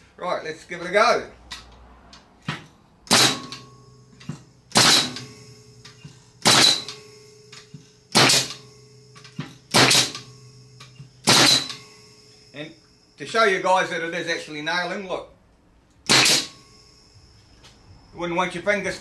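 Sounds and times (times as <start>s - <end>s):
nail gun bangs: 2.5s - 3.7s, 4.7s - 5.4s, 6.4s - 7.0s, 8.1s - 8.7s, 9.3s - 10.3s, 11.2s - 11.9s, 16.0s - 16.6s.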